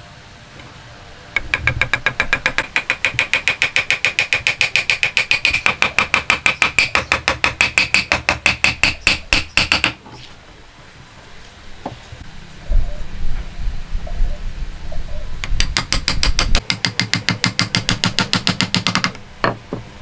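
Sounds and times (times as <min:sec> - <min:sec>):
wooden mallet tapping wood: 0:01.4 - 0:10.0, 0:15.4 - 0:19.8.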